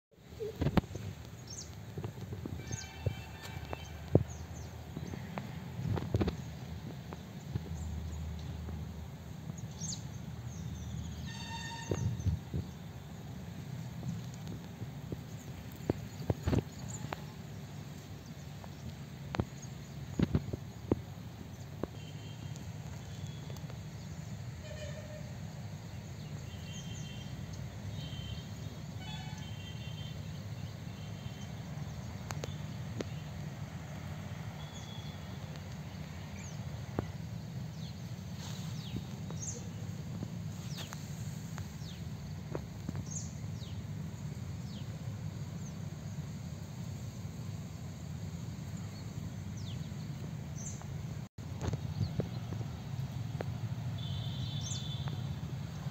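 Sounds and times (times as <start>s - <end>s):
falling whistled bird calls: 54.0s - 55.3s.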